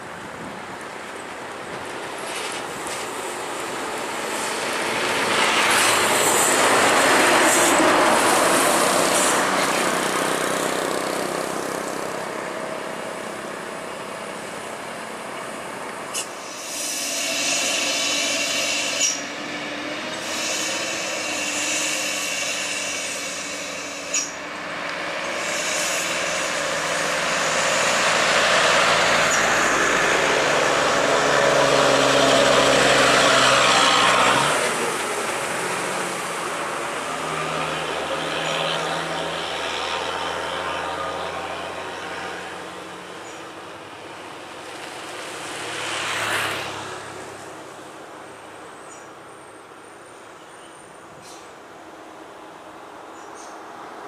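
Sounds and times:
diesel trucks passing: 0.1s - 50.2s
truck diesel engine pulling hard: 16.6s - 43.0s.

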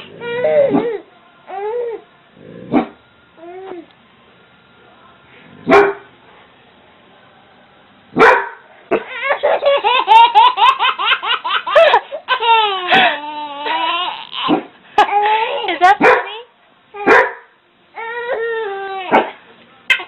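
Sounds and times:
dog barking: 2.7s - 3.0s, 5.7s - 6.1s, 8.2s - 9.1s, 16.0s - 16.4s, 17.0s - 17.5s, 19.1s - 19.4s
infant giggling: 9.1s - 15.7s.

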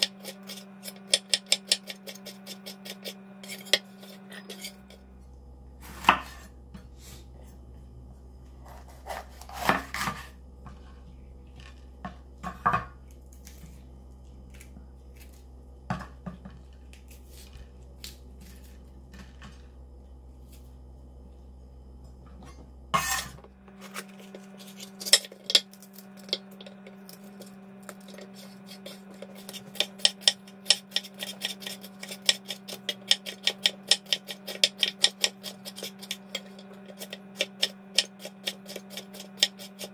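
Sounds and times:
rapid knife chopping: 0.0s - 3.8s, 28.0s - 39.9s.

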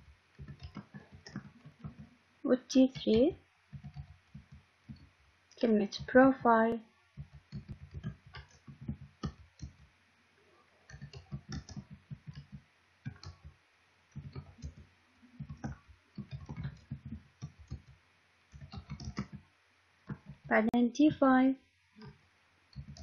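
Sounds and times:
keyboard typing clicks: 0.4s - 2.1s, 2.9s - 5.1s, 7.2s - 9.9s, 10.9s - 17.9s, 18.5s - 19.4s, 22.0s - 23.0s.

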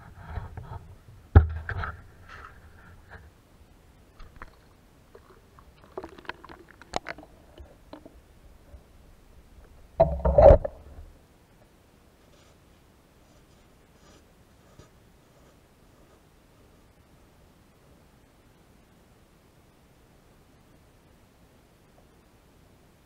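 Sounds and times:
muffled underwater knocks and bumps: 10.0s - 11.0s.

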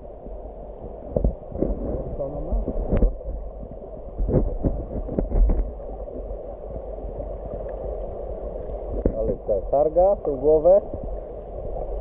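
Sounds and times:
underwater rumble: 0.0s - 12.0s.

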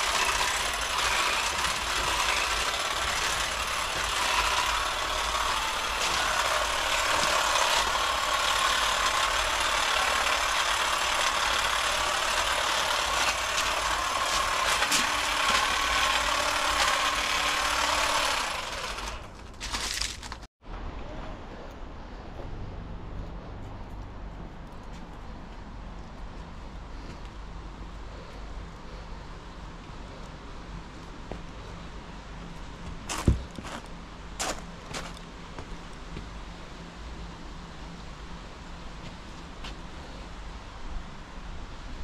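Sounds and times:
hedge trimmer cutting shrubs: 0.0s - 20.4s.

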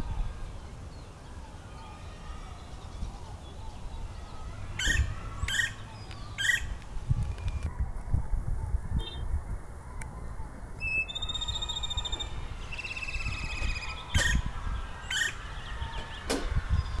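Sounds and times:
woodpecker calling: 3.2s - 6.8s, 10.8s - 17.0s.

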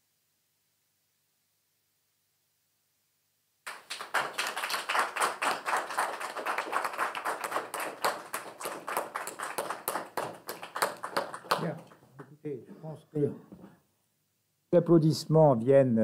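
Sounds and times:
audience applauding: 3.7s - 12.1s.

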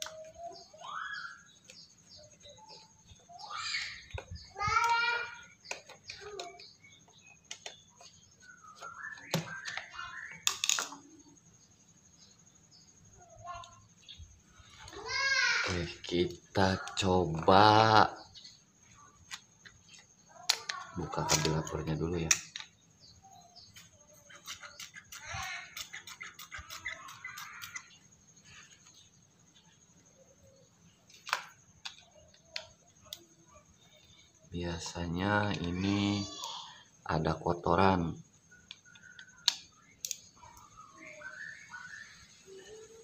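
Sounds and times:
small hard parts clicking: 3.5s - 11.1s, 19.2s - 23.0s, 23.7s - 28.8s.

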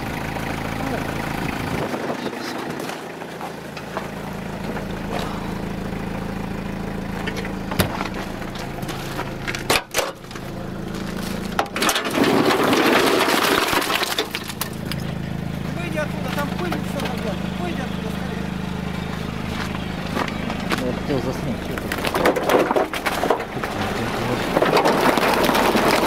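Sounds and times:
truck engine idling: 0.0s - 26.0s
footsteps crunching on snow: 2.7s - 5.5s, 16.1s - 22.0s
crunching rustle: 7.3s - 15.2s, 19.2s - 26.0s.

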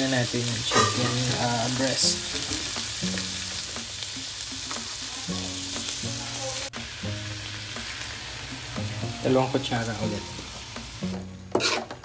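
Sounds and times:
food sizzling in a wok: 0.0s - 12.0s
metal spoon stirring: 11.5s - 12.0s.

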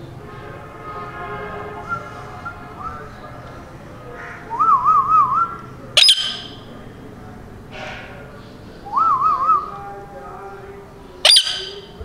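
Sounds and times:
parrot piercing screech: 6.0s - 6.6s, 11.3s - 12.0s
parrot warbling whistle: 6.0s - 6.6s, 11.2s - 12.0s.

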